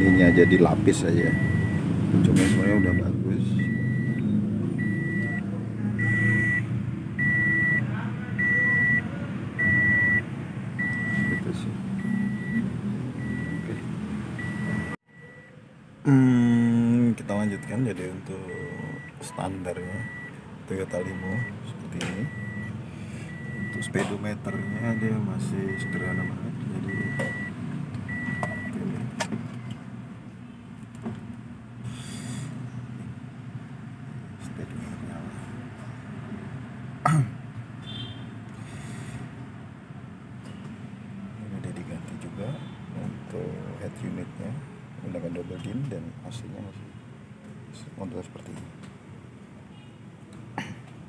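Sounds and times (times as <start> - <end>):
electronic warning beeper: 0.0 - 1.8, 2.4 - 13.8, 14.4 - 15.6, 17.3 - 21.6, 22.2 - 28.8
low hum inside car: 3.6 - 12.6, 14.4 - 28.9.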